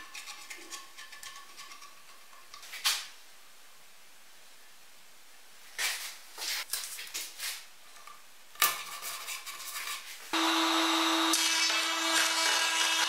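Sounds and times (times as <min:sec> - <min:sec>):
table saw running: 0:10.4 - 0:13.0.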